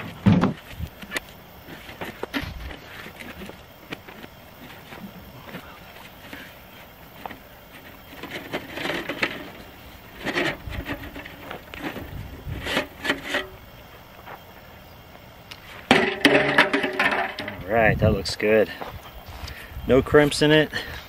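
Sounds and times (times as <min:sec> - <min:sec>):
copper tubing scraping and creaking: 0:00.6 - 0:13.7, 0:16.0 - 0:18.4
metal rattling on metal: 0:07.8 - 0:13.6, 0:15.9 - 0:17.7.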